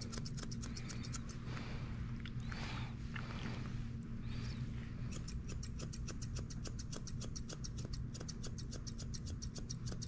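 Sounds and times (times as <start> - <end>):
scissors snipping hair: 0.0 - 1.4, 5.1 - 10.0.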